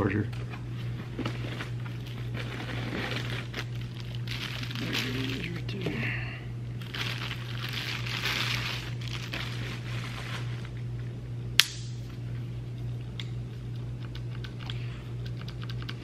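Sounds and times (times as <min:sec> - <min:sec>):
low hum: 0:00.0 - 0:16.0
plastic wrapping crinkling: 0:00.8 - 0:05.9, 0:06.8 - 0:10.8
sharp click: 0:11.6 - 0:12.0.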